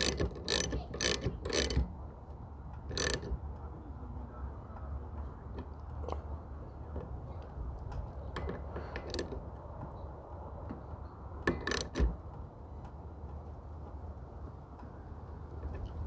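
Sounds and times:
socket ratchet clicking: 0.0s - 1.9s, 2.8s - 3.4s, 8.4s - 9.4s, 11.4s - 12.2s.

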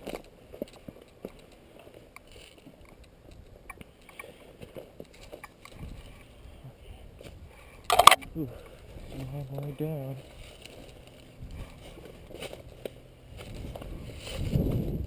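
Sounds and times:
dry grass and twigs rustling: 0.0s - 15.0s
wind rumble on microphone: 5.6s - 7.7s, 10.2s - 15.0s.

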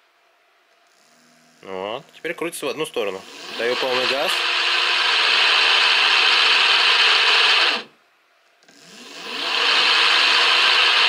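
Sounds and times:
motor wheels whirring: 3.2s - 7.9s, 8.6s - 11.0s.

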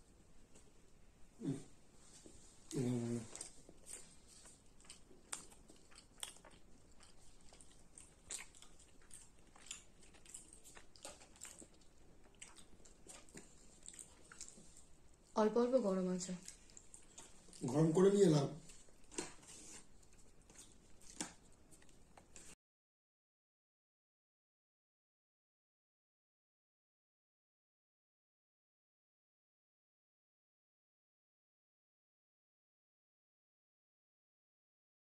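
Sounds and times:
person chewing: 1.4s - 15.3s, 16.3s - 22.6s.

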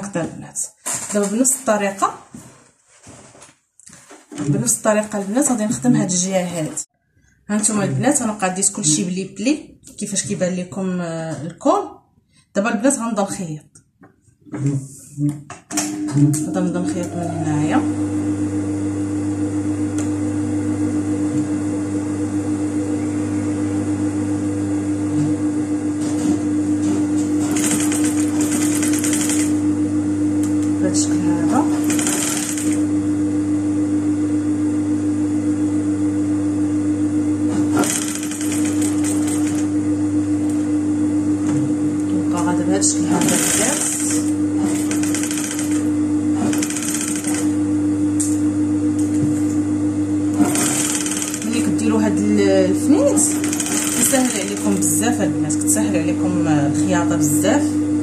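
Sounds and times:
sewing machine motor humming: 26.0s - 29.7s, 30.4s - 33.0s, 37.5s - 40.8s, 41.4s - 47.6s, 50.3s - 56.0s
sewing machine needle stitching: 27.4s - 29.6s, 31.5s - 32.8s, 37.7s - 39.7s, 43.1s - 47.5s, 50.4s - 51.7s, 53.2s - 54.8s.

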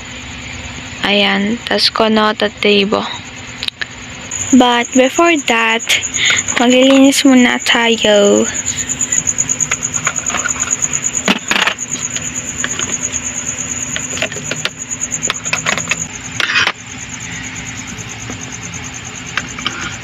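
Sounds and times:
high pulsing trill: 4.2s - 19.3s.

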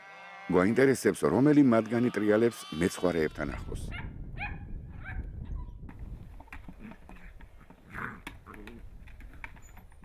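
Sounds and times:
small clicks and knocks: 5.9s - 10.0s.

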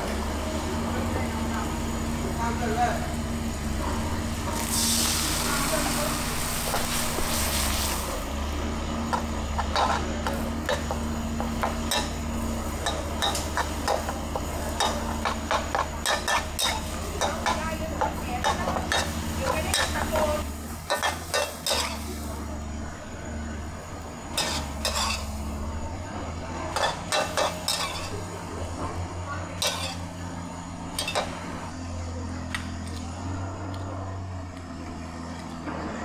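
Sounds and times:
food sizzling: 4.2s - 22.5s, 23.6s - 28.8s
metal spatula striking a wok: 14.8s - 20.0s.

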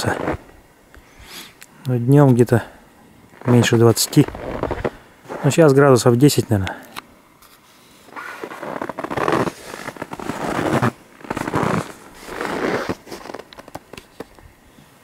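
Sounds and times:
footsteps crunching through snow: 3.4s - 5.7s, 8.1s - 13.5s.

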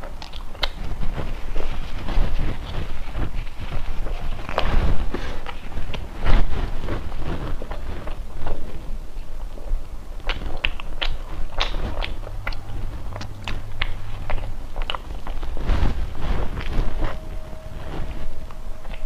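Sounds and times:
mouth clicks and lip smacks: 0.0s - 1.8s, 10.2s - 15.6s
chewing soft bread: 0.0s - 19.0s.

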